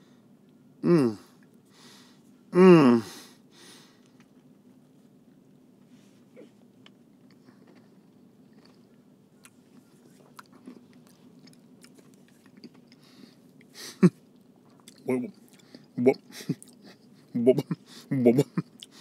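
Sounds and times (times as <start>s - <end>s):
faint low hum: 0.0s - 19.0s
man humming mmm: 0.8s - 1.3s, 2.6s - 3.2s.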